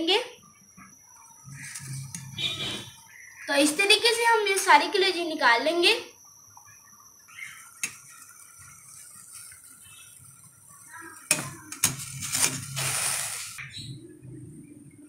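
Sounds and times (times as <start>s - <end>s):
strainer scraping through water: 11.7s - 13.6s.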